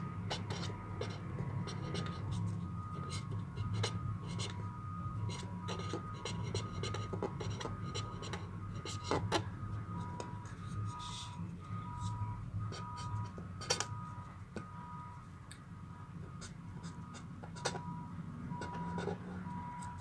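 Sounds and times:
pen scratching on paper: 0.3s - 4.6s, 5.3s - 9.4s, 16.4s - 17.8s, 18.6s - 19.4s.

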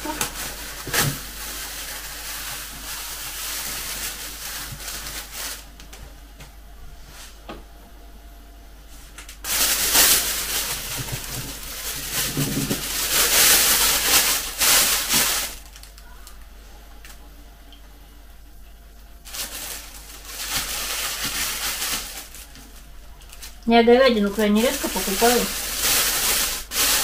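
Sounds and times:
plastic bag crinkling: 0.0s - 5.8s, 9.4s - 16.4s, 19.2s - 27.0s.

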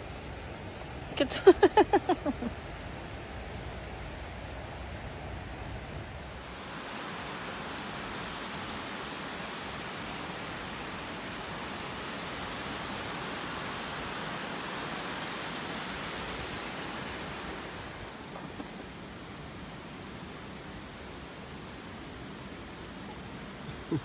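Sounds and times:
stream rushing over rocks: 6.3s - 24.0s.

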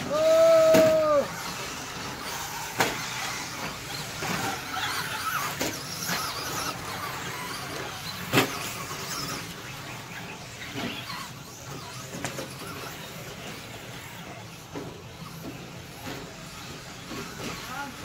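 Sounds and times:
electric motors whining: 0.0s - 18.0s
tyres hissing on loose dirt: 0.0s - 18.0s.

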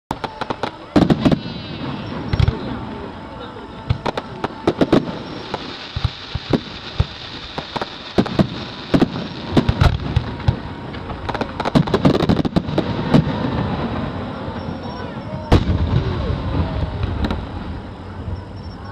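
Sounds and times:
fireworks crackling hiss: 0.1s - 18.9s
firework shells bursting: 3.8s - 17.6s.

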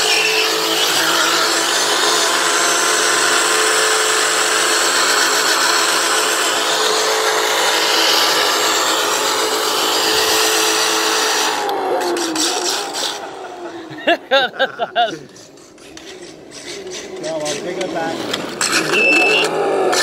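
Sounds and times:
electric rc car motor whining: 0.0s - 13.6s, 15.4s - 20.0s
tyres scrubbing on ground: 15.1s - 19.1s.

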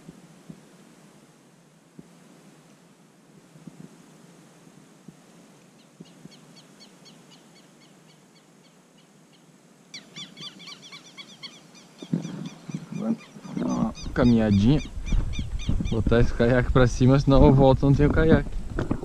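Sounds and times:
bird chirping: 5.8s - 16.2s.

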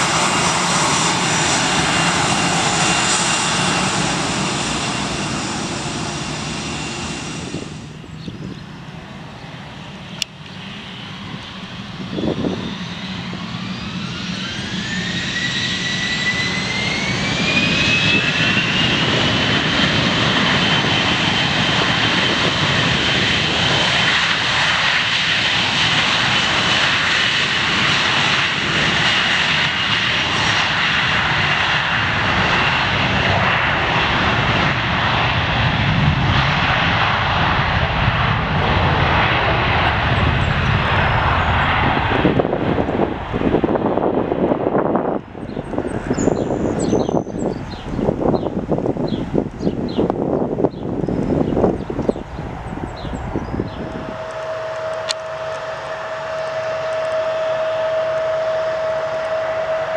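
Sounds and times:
jet engines spooling up: 0.0s - 59.9s.

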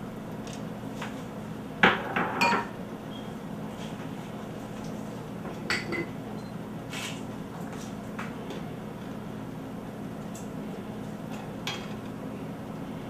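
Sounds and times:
pots and utensils clinking: 1.9s - 2.7s.

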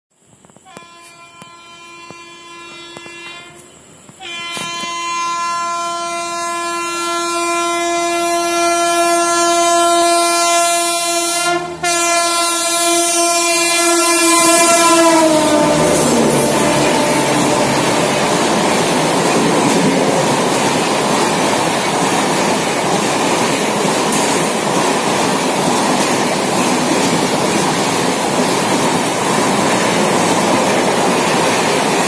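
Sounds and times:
train coaches rushing by: 0.4s - 32.0s
locomotive horn blasts: 0.6s - 19.0s.

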